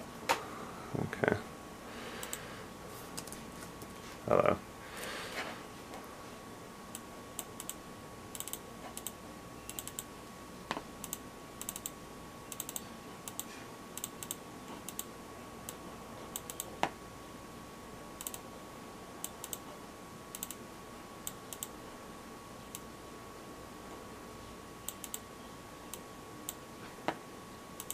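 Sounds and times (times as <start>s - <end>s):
faint high hum: 0.0s - 27.9s.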